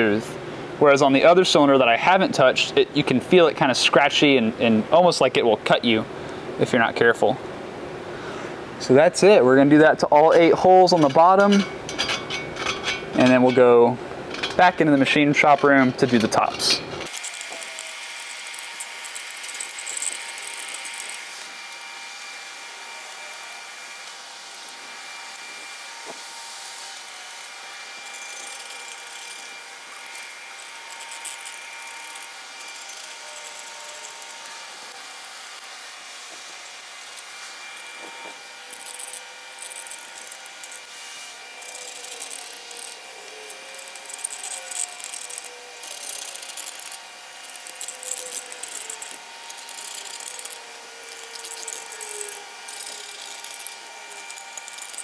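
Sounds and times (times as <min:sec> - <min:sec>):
steady background hum: 0:00.0 - 0:55.0
scraper scratching metal edges: 0:15.4 - 0:55.0.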